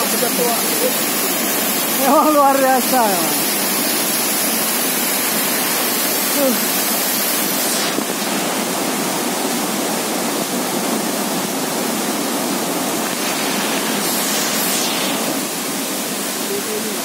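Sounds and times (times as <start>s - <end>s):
waterfall crashing onto rocks: 0.0s - 17.0s.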